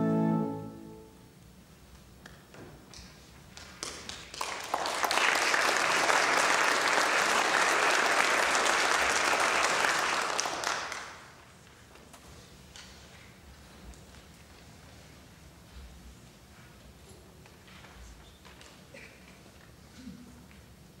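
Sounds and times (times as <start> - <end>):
audience applauding: 3.6 - 11.4.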